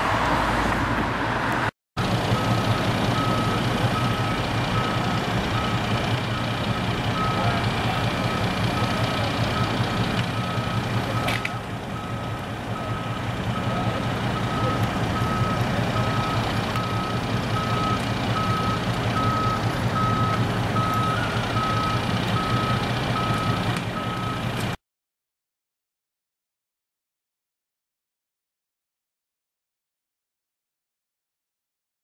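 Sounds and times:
vehicle back-up alarm beeping: 2.0 - 24.7
fire engine engine running: 2.0 - 24.8.

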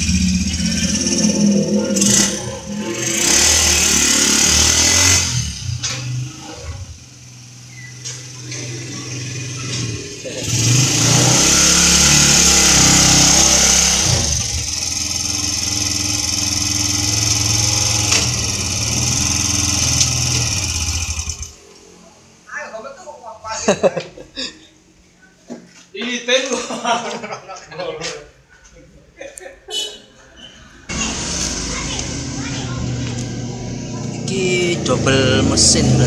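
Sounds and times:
motorcycle engine idling and revving: 0.0 - 21.7, 30.9 - 36.0.

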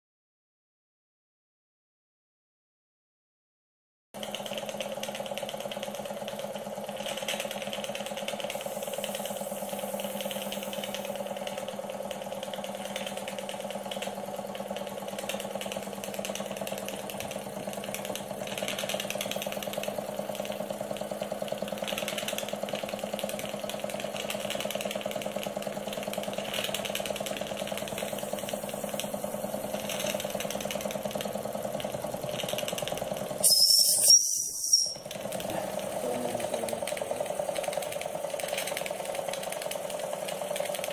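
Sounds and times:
model steam engine humming: 4.2 - 40.9
steam hissing: 8.3 - 11.7, 26.0 - 31.6, 33.1 - 37.5
shrill steam whistle: 33.4 - 35.0.

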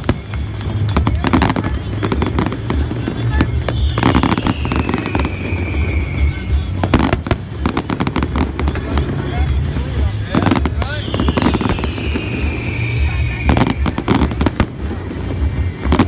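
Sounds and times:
fireworks bursting and crackling: 0.0 - 16.0
long falling whistle: 3.7 - 6.5, 11.0 - 14.3.

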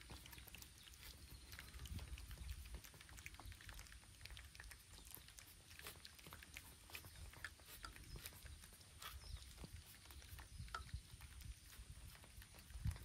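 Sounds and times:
light rain pattering: 0.0 - 8.6
cats chewing food: 0.0 - 13.0.

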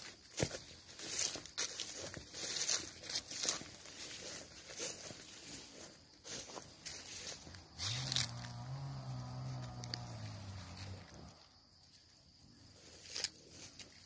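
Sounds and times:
footsteps through grass and weeds: 0.0 - 14.0
long low call or hum: 7.7 - 11.7.

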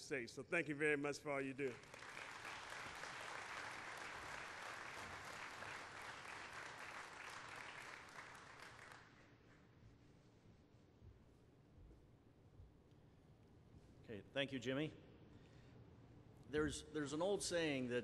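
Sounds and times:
audience applauding: 1.7 - 9.2.

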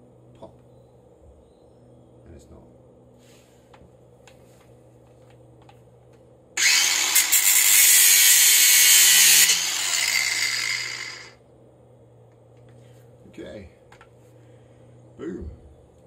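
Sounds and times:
angle grinder cutting steel: 6.6 - 11.4.

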